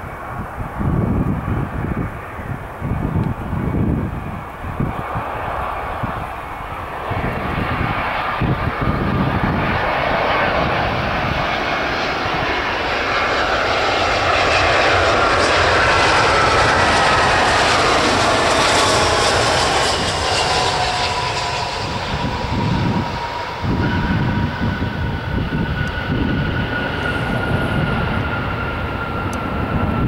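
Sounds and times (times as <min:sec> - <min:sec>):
jet airliner passing: 0:00.0 - 0:30.0
whining engine tones: 0:13.7 - 0:30.0.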